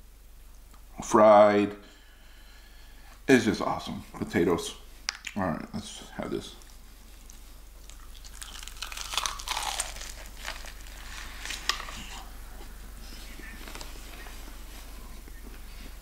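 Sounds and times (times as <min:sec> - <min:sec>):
fried chicken crunching: 0:06.6 - 0:12.3.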